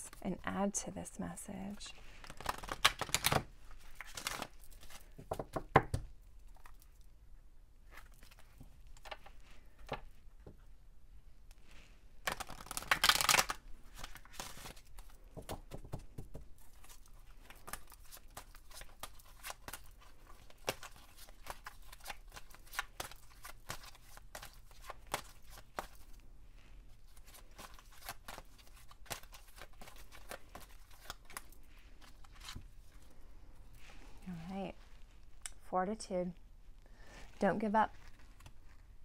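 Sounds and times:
cards being shuffled by hand: 2.0s - 6.8s, 11.7s - 26.2s, 26.8s - 33.2s, 37.1s - 39.0s.

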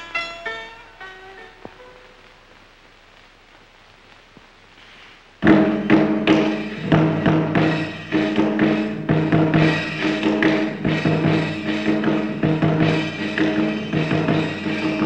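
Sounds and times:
faint hiss: 0.0s - 15.0s
loud percussion strikes: 5.4s - 15.0s.

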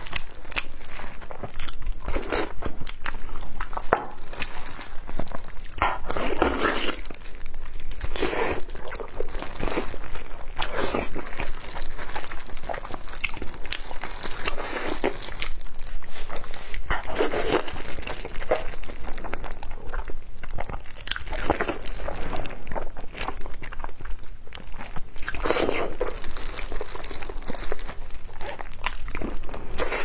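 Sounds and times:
biting and chewing meat: 0.0s - 30.0s.

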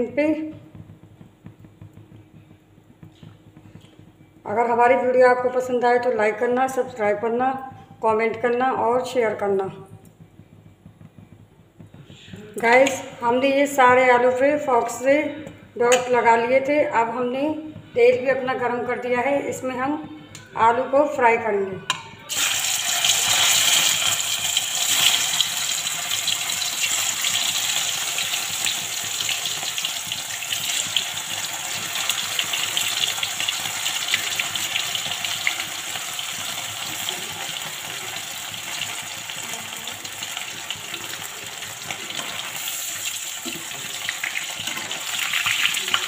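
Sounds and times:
potatoes deep-frying in hot oil: 22.3s - 46.0s.

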